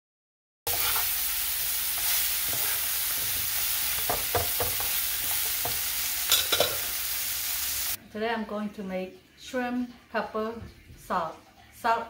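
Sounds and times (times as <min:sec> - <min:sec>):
spoon scraping a pan: 0:00.7 - 0:07.9
shrimp sizzling in a frying pan: 0:00.7 - 0:08.0.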